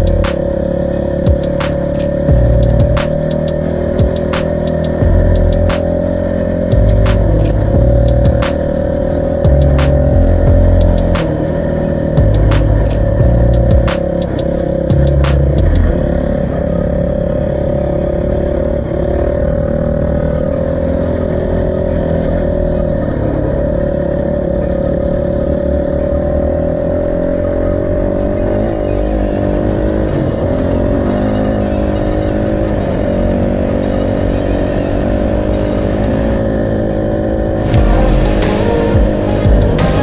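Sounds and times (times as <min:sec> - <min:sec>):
motorcycle engine running: 0:00.0 - 0:40.0.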